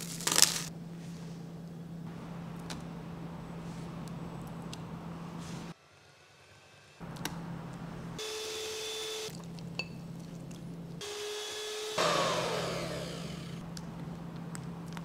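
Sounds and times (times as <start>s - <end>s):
electric hand mixer running: 8.2s - 9.3s, 11.0s - 13.6s.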